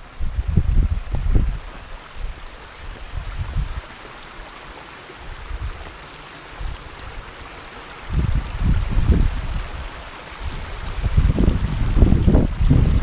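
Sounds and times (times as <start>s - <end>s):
wind gusts buffeting microphone: 0.0s - 3.9s, 8.0s - 13.0s
steady rushing hiss: 0.0s - 13.0s.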